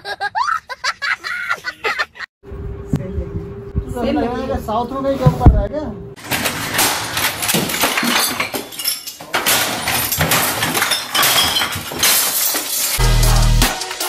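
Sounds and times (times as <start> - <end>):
objects crashing and smashing: 6.2 - 13.0.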